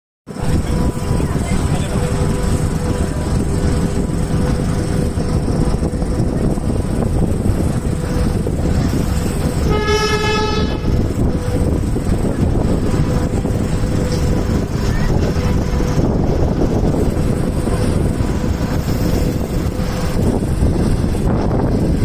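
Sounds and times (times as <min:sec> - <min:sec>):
train wheels rumbling on rails: 0:00.3 - 0:22.0
wind rushing through window: 0:00.3 - 0:22.0
train horn blast: 0:09.5 - 0:11.0.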